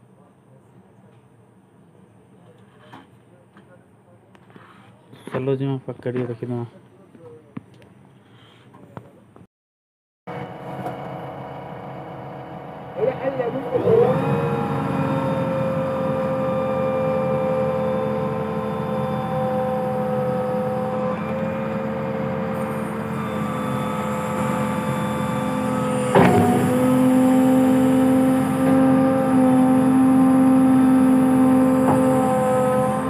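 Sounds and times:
diesel engine running: 0:10.3 - 0:33.0
sharp clunk: 0:26.1 - 0:26.8.

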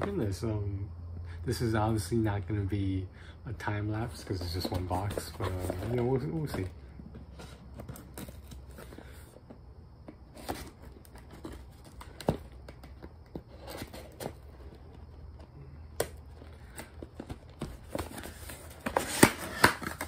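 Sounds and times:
tape scraping cardboard: 0:04.2 - 0:06.7, 0:10.3 - 0:15.4, 0:16.0 - 0:20.0.

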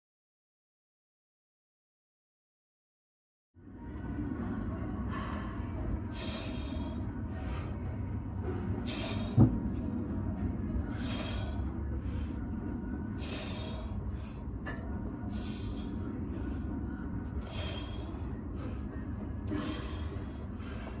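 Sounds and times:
steady low rumble: 0:03.6 - 0:21.0
person breathing hard: 0:06.0 - 0:07.9, 0:08.8 - 0:09.5, 0:10.8 - 0:14.5, 0:15.3 - 0:16.8, 0:17.4 - 0:21.0
sharp hissing exhale: 0:08.8 - 0:09.4, 0:13.2 - 0:13.9, 0:15.3 - 0:16.0.

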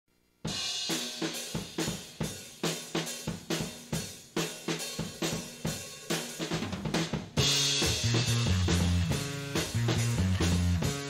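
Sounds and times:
drum kit beat with cymbals: 0:00.4 - 0:11.0
bass line: 0:07.4 - 0:11.0.

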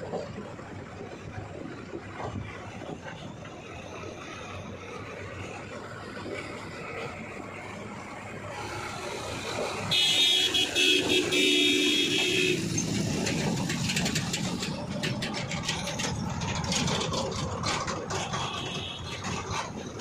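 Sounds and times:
diesel engines running: 0:00.0 - 0:20.0
vehicle horn: 0:09.8 - 0:12.7, 0:18.2 - 0:19.3
rapid rattling clicks: 0:12.6 - 0:20.0.

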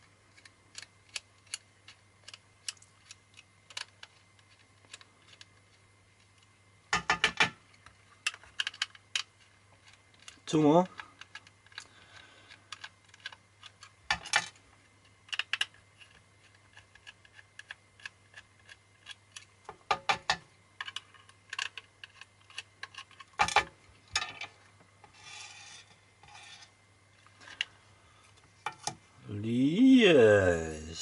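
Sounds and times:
plastic cover scraping: 0:22.1 - 0:27.7.

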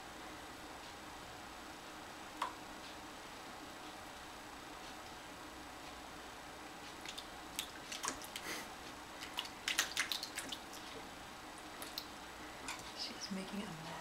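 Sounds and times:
kitten splashing in water dish: 0:07.0 - 0:08.5, 0:09.2 - 0:11.1, 0:11.8 - 0:12.1.

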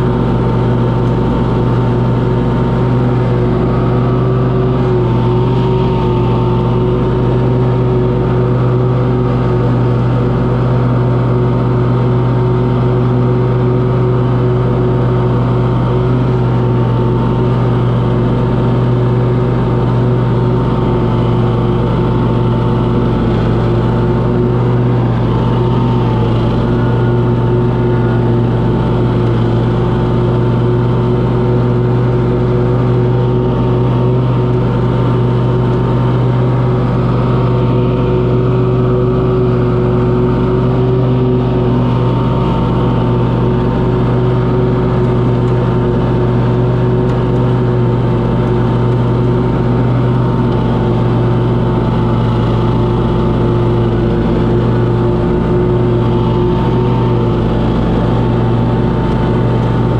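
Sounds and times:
lawn mower engine running: 0:00.0 - 0:59.9.

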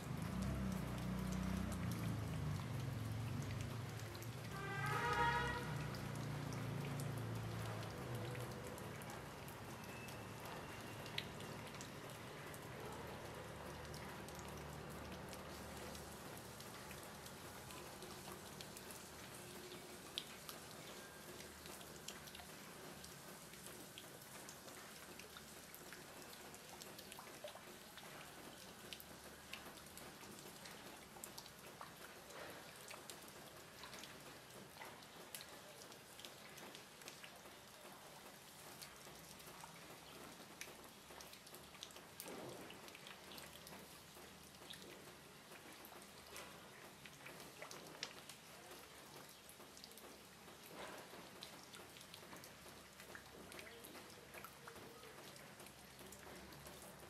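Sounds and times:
light rain hiss: 0:00.0 - 0:57.0
water drops ticking: 0:00.1 - 0:32.2.

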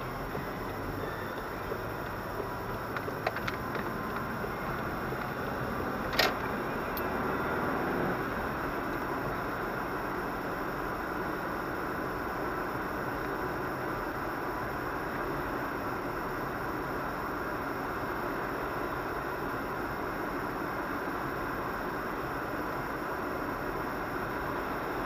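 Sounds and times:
car road and engine noise: 0:00.0 - 0:25.0
small clicks: 0:02.8 - 0:05.4, 0:06.0 - 0:07.1.

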